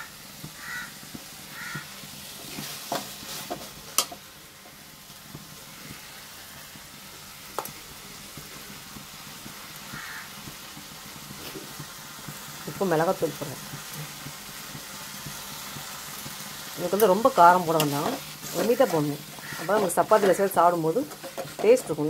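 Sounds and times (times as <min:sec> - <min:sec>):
food sizzling in oil: 0:00.0 - 0:22.0
metal spoon scraping a pan: 0:02.4 - 0:04.2, 0:17.0 - 0:22.0.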